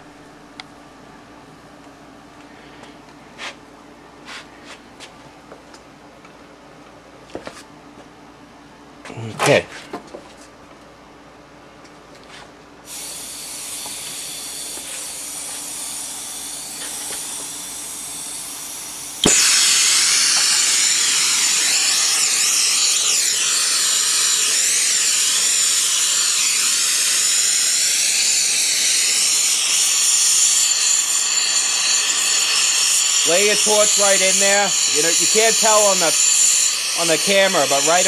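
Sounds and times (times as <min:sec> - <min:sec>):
gas hissing: 0:12.8 - 0:38.0
torch flame roaring: 0:12.9 - 0:38.0
torch lighting pop: 0:19.2 - 0:23.3.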